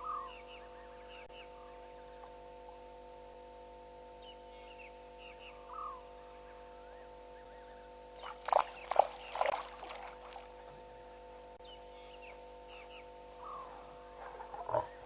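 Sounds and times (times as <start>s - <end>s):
electrical hum: 0.0s - 15.0s
lions making sharp sounds: 13.6s - 15.0s.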